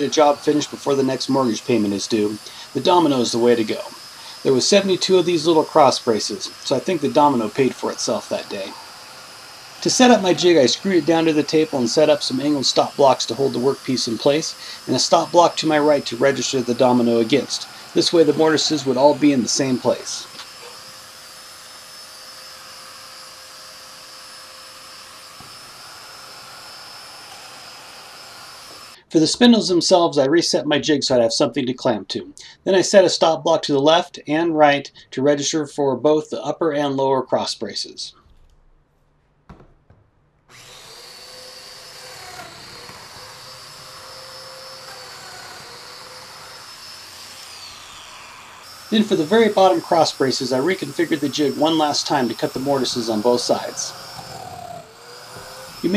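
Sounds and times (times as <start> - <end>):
power tool whirring: 0.0 - 29.1, 40.4 - 55.9.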